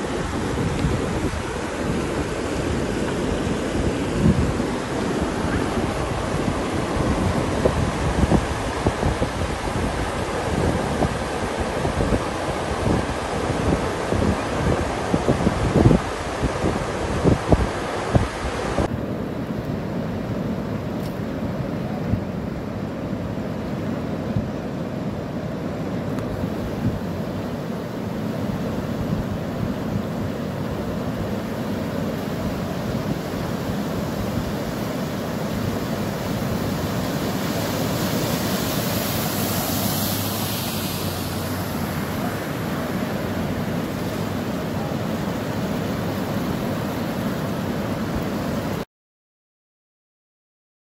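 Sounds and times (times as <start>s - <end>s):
floodwater rushing: 0.0s - 48.8s
wind buffeting microphone: 0.0s - 48.8s
vehicle wading through water: 30.7s - 48.8s.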